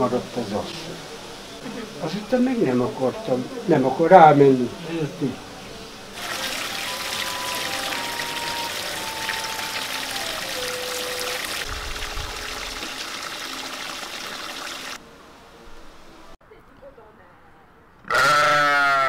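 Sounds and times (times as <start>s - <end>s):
water pouring into a basin: 6.2s - 15.0s.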